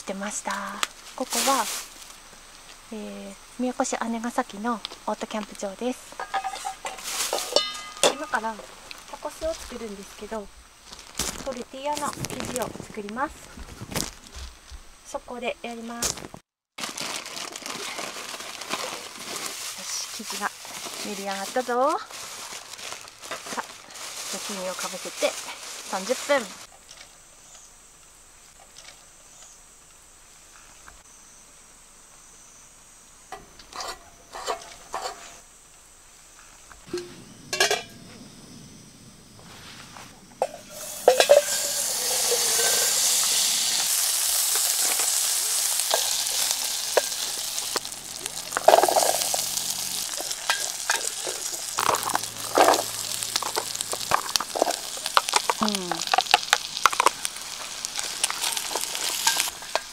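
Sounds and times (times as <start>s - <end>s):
food sizzling in a hot pan: 0.2s - 12.7s, 16.8s - 26.7s, 40.4s - 59.9s
utensils tapping and scraping: 6.2s - 8.4s, 40.4s - 43.0s, 45.8s - 47.8s, 48.4s - 57.2s, 58.0s - 59.9s
cooking gear clattering: 6.2s - 8.6s, 40.4s - 59.9s.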